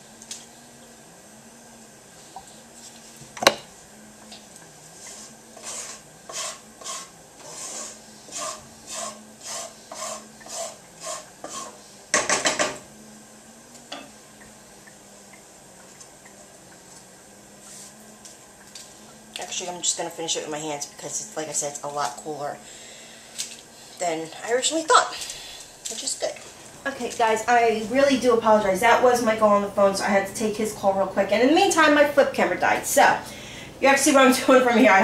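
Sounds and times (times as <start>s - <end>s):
spoon scraping frying pan: 4.4s - 12.8s.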